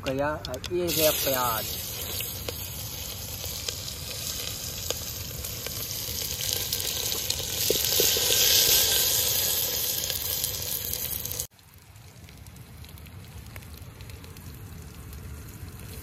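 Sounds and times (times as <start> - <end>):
onions sizzling in hot oil: 0.8 - 11.5.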